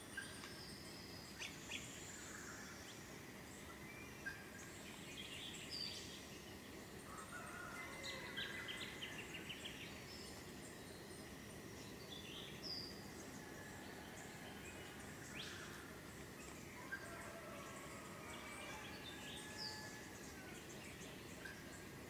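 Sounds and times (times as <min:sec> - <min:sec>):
low background noise: 0:00.0 - 0:22.0
wild birds calling: 0:12.2 - 0:22.0.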